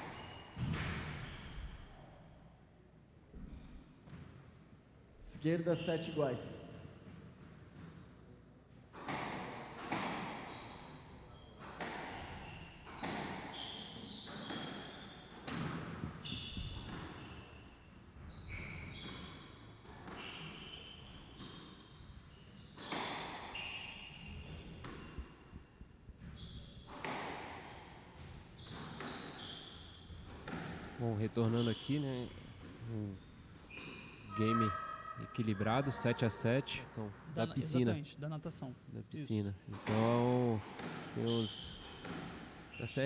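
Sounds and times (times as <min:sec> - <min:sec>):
squash ball hits echoing: 0:08.9 - 0:10.6, 0:11.6 - 0:17.4, 0:26.9 - 0:27.7, 0:30.1 - 0:31.6, 0:39.7 - 0:42.7
shoes squeaking on hardwood floor: 0:09.0 - 0:25.5, 0:26.2 - 0:27.1, 0:28.1 - 0:36.6, 0:41.2 - 0:43.0.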